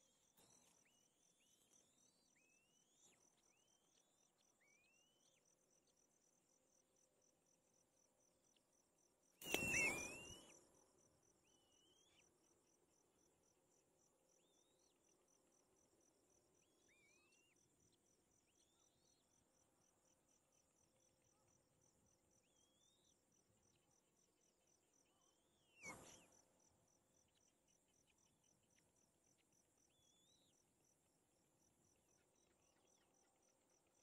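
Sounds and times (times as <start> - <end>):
cricket trill: 0.0 - 34.0
high bird call: 9.4 - 10.5
wings rustling and fluttering: 9.4 - 10.5
short rising bird calls: 9.4 - 10.6.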